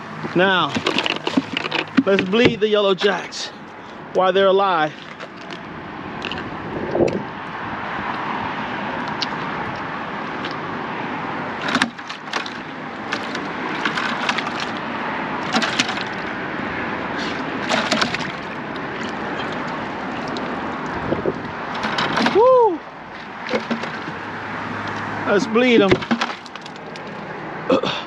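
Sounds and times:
passing road traffic: 0:00.0 - 0:28.0
fish splashing in a bucket: 0:00.1 - 0:02.6, 0:04.9 - 0:06.6, 0:11.5 - 0:27.3.

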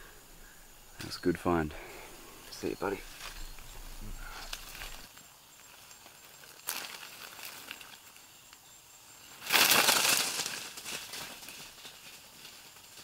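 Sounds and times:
leaves rustling: 0:00.0 - 0:13.0
animal rushing through dry leaves: 0:05.7 - 0:08.2, 0:09.4 - 0:13.0.

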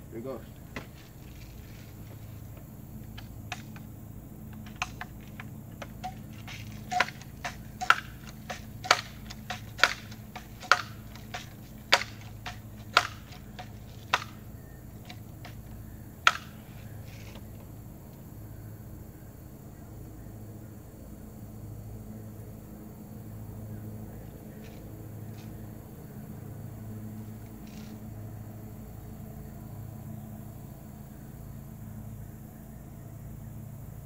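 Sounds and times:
pellet rifle pump clacks: 0:04.5 - 0:14.4.

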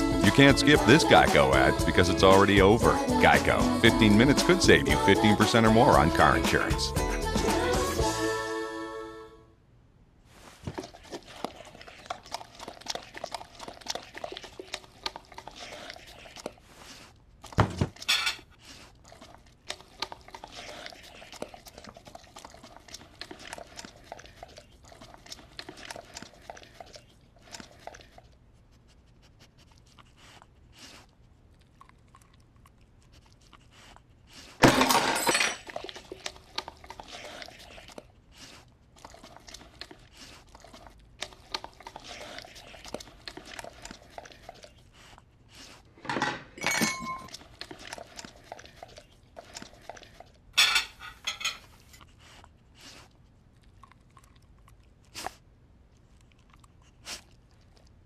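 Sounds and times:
dog chewing and lapping: 0:00.0 - 0:08.0, 0:10.6 - 0:46.0, 0:46.6 - 0:58.0
dishes and cutlery clinking: 0:18.0 - 0:18.5, 0:34.6 - 0:35.8, 0:46.0 - 0:47.4, 0:50.6 - 0:51.7.

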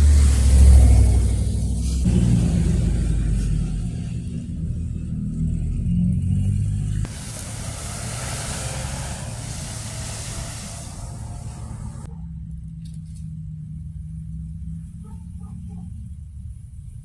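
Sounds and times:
passing road noise hiss: 0:00.0 - 0:04.1, 0:06.8 - 0:12.1
car engine humming: 0:00.0 - 0:17.0.

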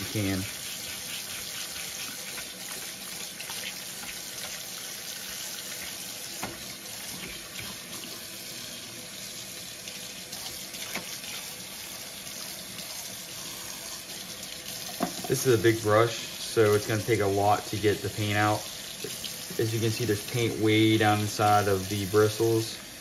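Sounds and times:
scrub brush scrubbing: 0:00.0 - 0:04.6
faucet running into sink: 0:00.0 - 0:23.0.

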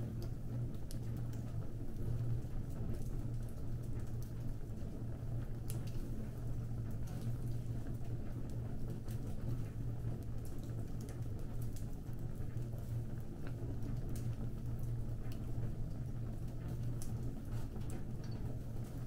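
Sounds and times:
low fire rumble: 0:00.0 - 0:19.0
fire crackling and popping: 0:00.1 - 0:19.0.

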